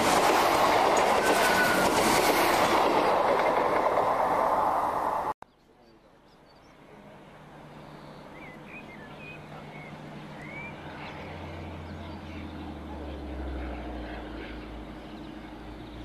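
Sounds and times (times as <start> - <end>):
diesel locomotive engine drone: 0.0 - 5.4, 6.6 - 16.0
birds chirping: 5.4 - 16.0.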